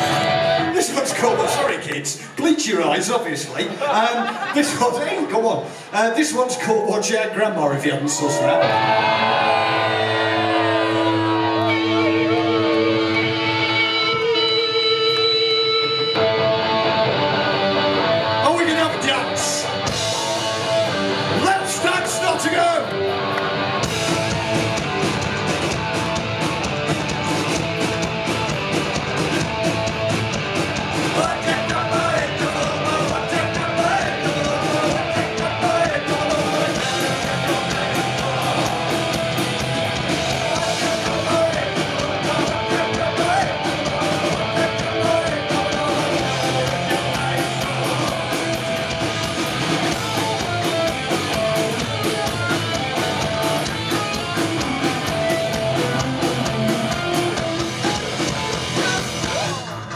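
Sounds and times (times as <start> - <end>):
distorted electric guitars: 0.0 - 6.4, 8.1 - 59.9
metal band playing live: 0.0 - 6.7, 8.0 - 59.9
shouted singing: 8.2 - 13.3, 31.1 - 48.9
fast drums: 18.4 - 22.9, 23.8 - 59.9.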